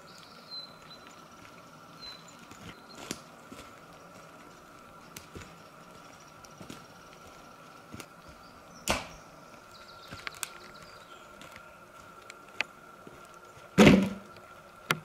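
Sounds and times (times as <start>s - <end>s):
dry sticks snapping: 8.8s - 9.2s, 10.1s - 10.8s.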